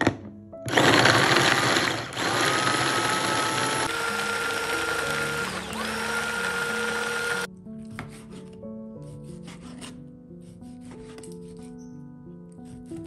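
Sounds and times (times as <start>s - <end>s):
mini chopper motor whining: 0.7s - 7.5s.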